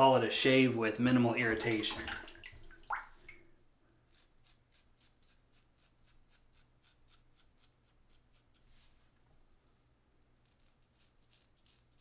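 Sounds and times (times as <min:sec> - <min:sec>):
razor scraping stubble: 0:04.1 - 0:08.8.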